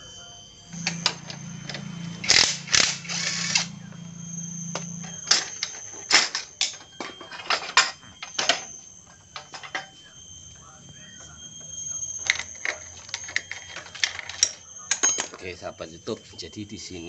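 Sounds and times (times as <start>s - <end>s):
metal clinks and clanks: 0.7s - 3.7s, 4.7s - 10.1s, 12.2s - 15.6s
cordless drill whirring: 0.7s - 9.8s.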